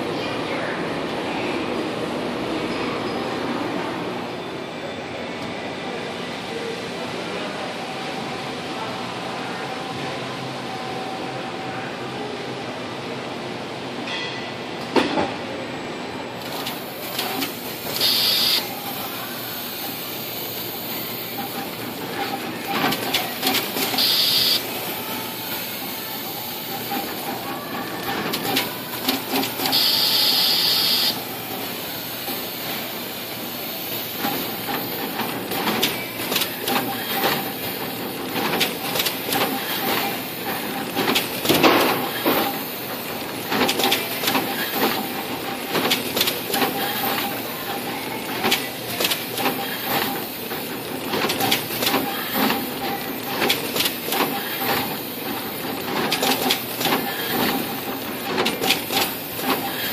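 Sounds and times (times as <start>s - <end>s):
machine whir and rattle: 16.3s - 59.9s.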